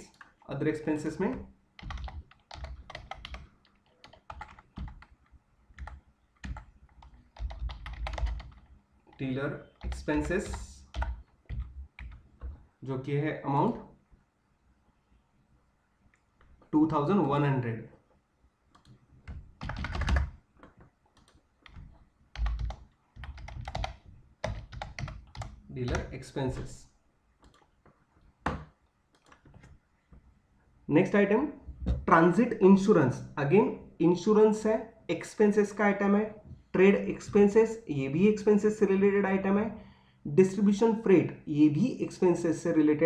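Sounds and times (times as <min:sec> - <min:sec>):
computer keyboard typing: 0:01.1 - 0:12.6, 0:18.7 - 0:26.7, 0:27.4 - 0:27.7, 0:28.4 - 0:29.7.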